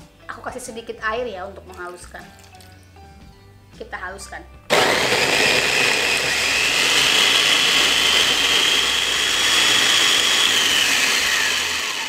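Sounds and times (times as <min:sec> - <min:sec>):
electric food chopper whining: 0:04.7 - 0:12.0.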